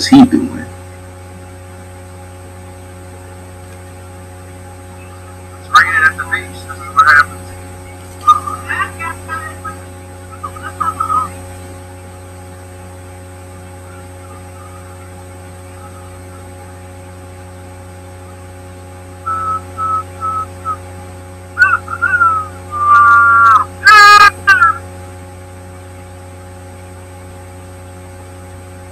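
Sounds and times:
low electrical hum: 0:00.0 - 0:28.9
gliding whistle-like tones: 0:19.3 - 0:20.8, 0:21.6 - 0:24.8.

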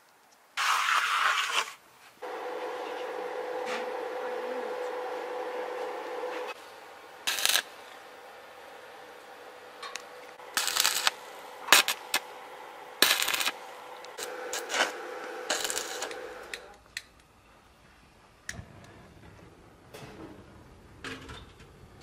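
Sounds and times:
crackling welding arc: 0:00.2 - 0:17.3
steady welder hum: 0:02.2 - 0:17.4.

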